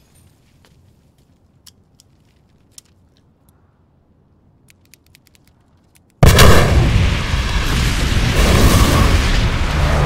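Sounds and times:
building explosion rumbling: 6.2 - 10.0.

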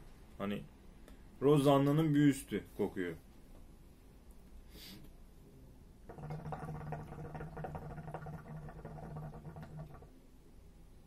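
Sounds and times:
hookah water bubbling: 6.0 - 10.2.

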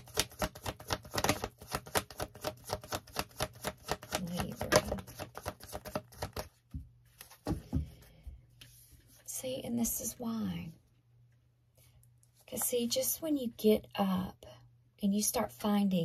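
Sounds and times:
cards being shuffled: 0.0 - 7.7.

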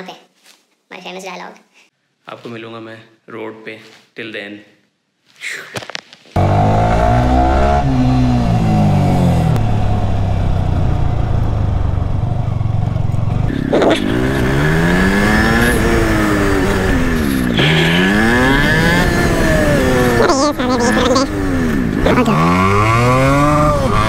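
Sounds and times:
motorcycle engine revving: 6.4 - 24.0.

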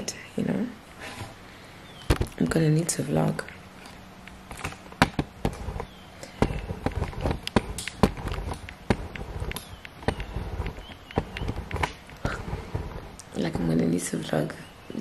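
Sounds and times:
camera handling knocks and clicks: 4.5 - 12.9.

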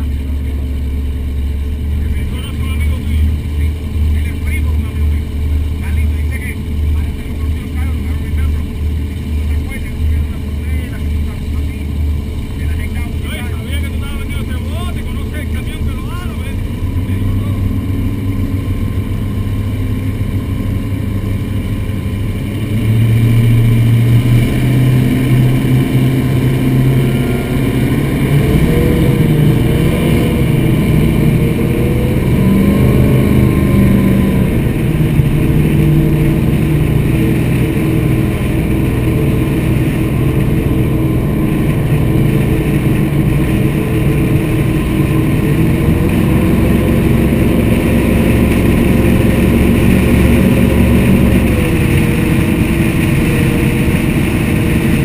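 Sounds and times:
powerboat engines droning: 0.0 - 55.0.

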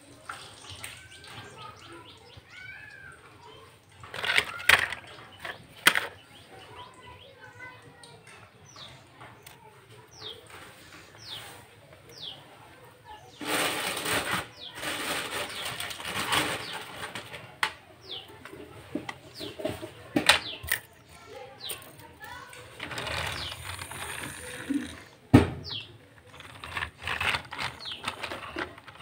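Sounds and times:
rustling noise: 10.2 - 12.4, 13.2 - 29.0.

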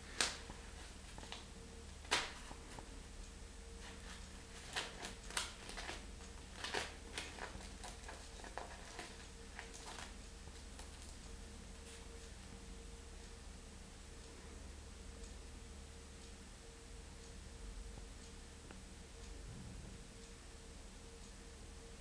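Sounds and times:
faint steady hum: 0.0 - 22.0
paper rustling and crinkling: 3.8 - 10.1.

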